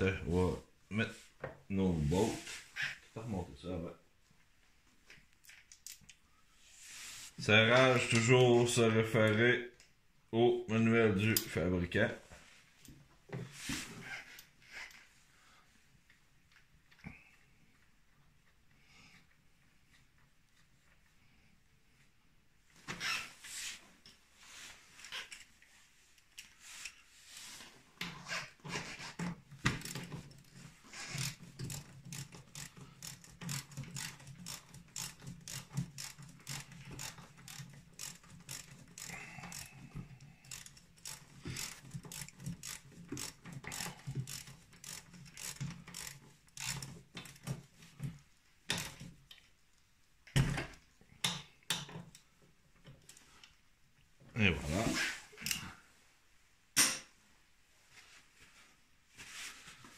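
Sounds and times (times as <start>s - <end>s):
socket ratchet clicking: 31.1s - 39.7s.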